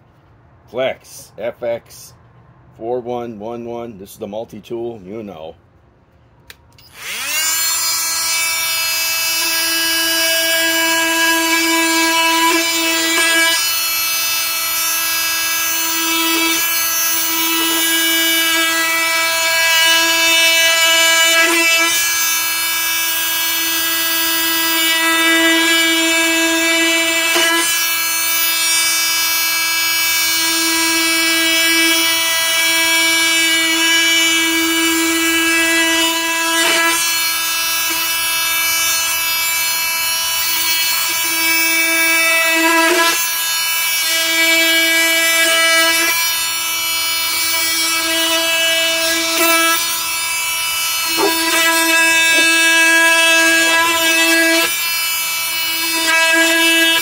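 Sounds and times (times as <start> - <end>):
oscillating multi-tool buzzing whine: 6.7 - 57.0.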